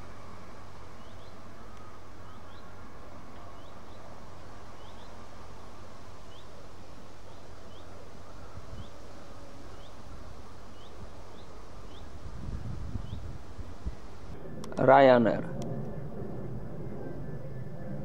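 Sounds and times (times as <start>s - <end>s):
outdoor rumble and hiss: 0.0s - 18.0s
small bird chirping: 12.9s - 13.4s.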